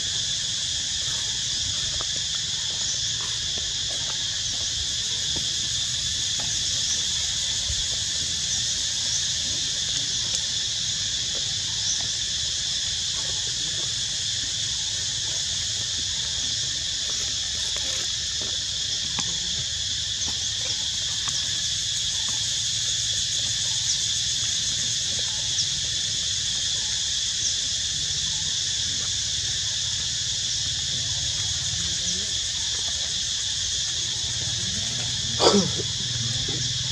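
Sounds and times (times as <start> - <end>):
insect chirps: 0.0 - 36.9.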